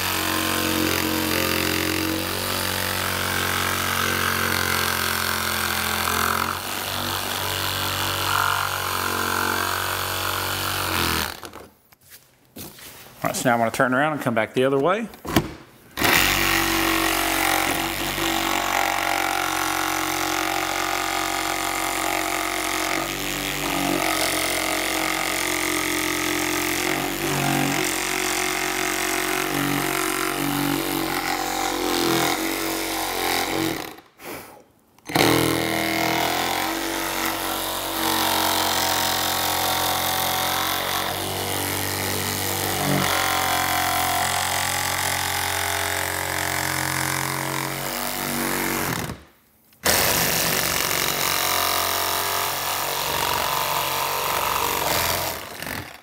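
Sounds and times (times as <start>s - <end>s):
reciprocating saw cutting: 16.0s - 49.2s.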